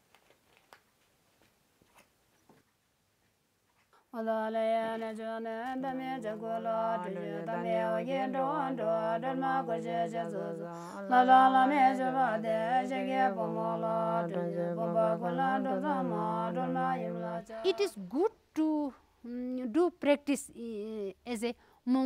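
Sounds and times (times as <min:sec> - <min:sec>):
person chanting a prayer: 0:04.2 - 0:18.1.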